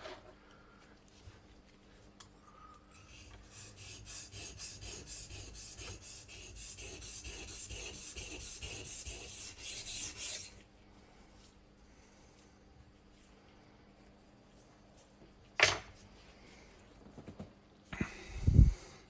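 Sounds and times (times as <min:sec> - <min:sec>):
blade scraping on whetstone: 0:03.0 - 0:10.6.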